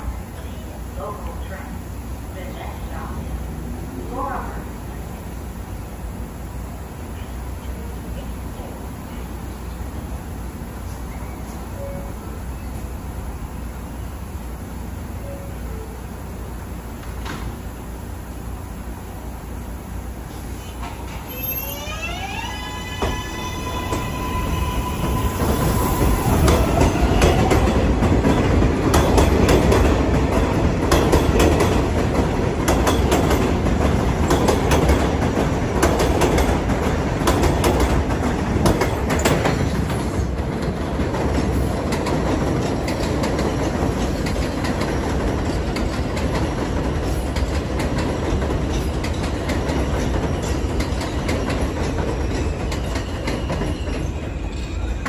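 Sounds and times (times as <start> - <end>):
train cars clacking over rail joints: 22.7 - 55.0.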